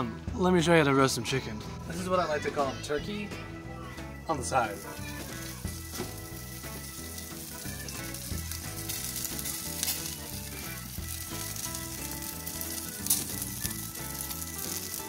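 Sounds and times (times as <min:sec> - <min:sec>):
background music: 0:00.0 - 0:15.0
chicken sizzling on a grill: 0:03.8 - 0:15.0.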